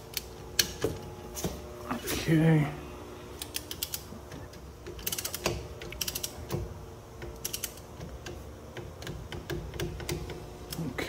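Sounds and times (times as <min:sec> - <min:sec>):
socket wrench ratcheting: 0:04.8 - 0:06.4, 0:07.3 - 0:07.8.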